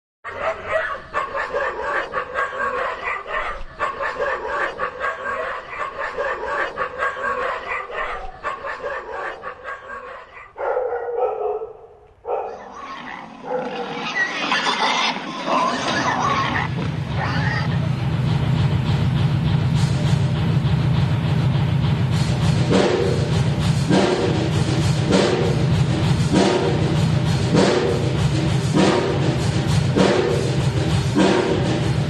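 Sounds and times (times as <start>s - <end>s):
chorus of animal calls: 0.3s - 11.0s, 12.3s - 17.7s.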